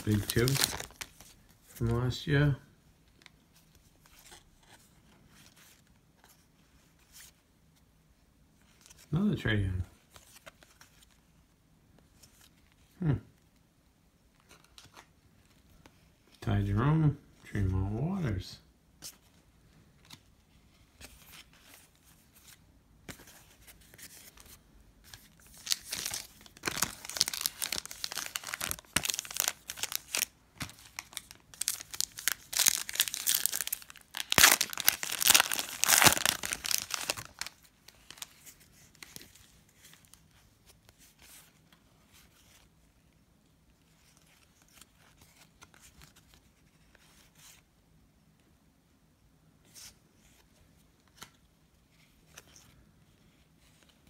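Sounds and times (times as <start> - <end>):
plastic wrapper tearing and crinkling: 0.0 - 1.2, 25.4 - 38.3
faint handling of cards: 0.0 - 48.6, 49.4 - 54.0.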